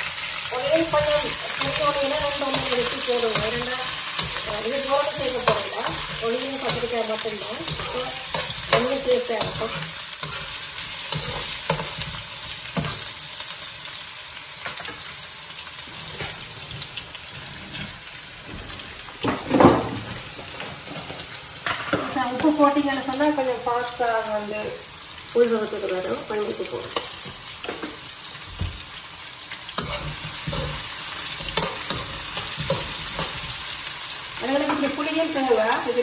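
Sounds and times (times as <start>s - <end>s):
onions sizzling in oil: 0.0s - 36.0s
metal spoon scraping and clinking: 0.8s - 12.2s, 29.8s - 33.6s.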